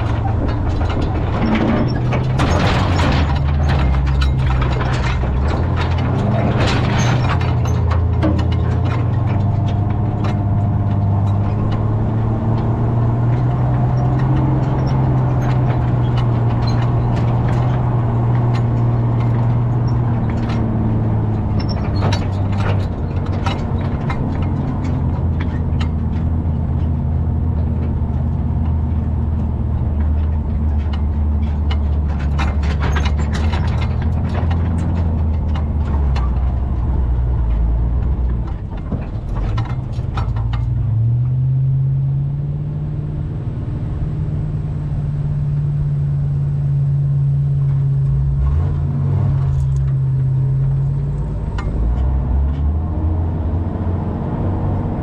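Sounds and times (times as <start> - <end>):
hanging chains rattling: 0.0 - 41.5
clanks and rattles of truck body: 0.0 - 55.0
truck engine running: 0.0 - 55.0.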